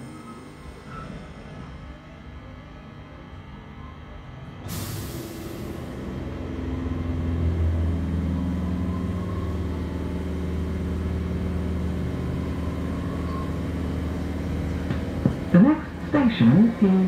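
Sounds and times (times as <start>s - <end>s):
train rumble: 5.1s - 17.0s.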